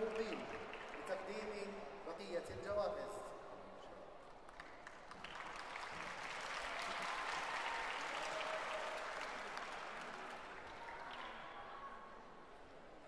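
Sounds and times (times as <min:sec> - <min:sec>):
audience applauding: 0:00.0 - 0:01.6, 0:04.5 - 0:11.9.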